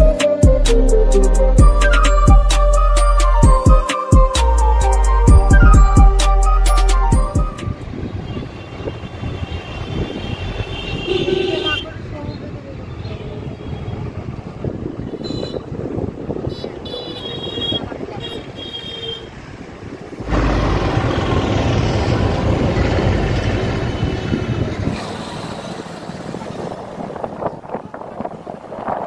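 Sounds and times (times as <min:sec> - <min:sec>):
road and wind noise inside car: 0:07.1 - 0:29.0.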